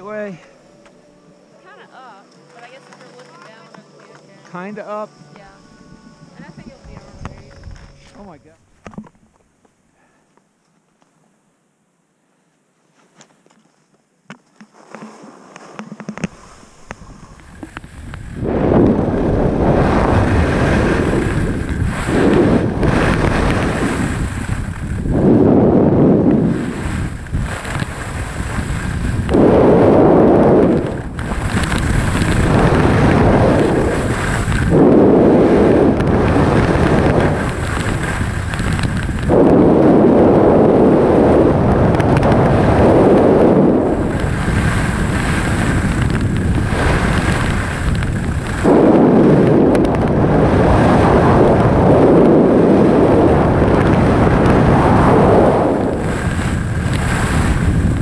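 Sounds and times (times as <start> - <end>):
wind buffeting microphone: 5.5 - 9.1, 16.0 - 58.0
skis scraping over snow: 14.5 - 58.0.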